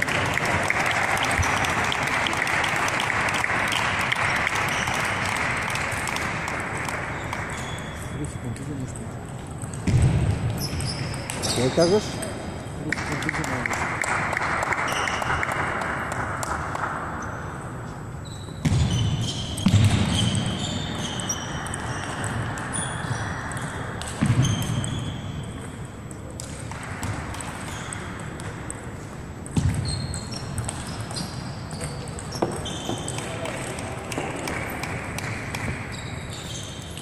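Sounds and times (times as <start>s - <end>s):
sneaker squeaks on floor: 7.1s - 9.1s, 9.8s - 12.3s, 17.2s - 25.7s, 27.5s - 28.2s, 29.5s - 37.0s
table tennis balls clicking: 21.0s - 37.0s.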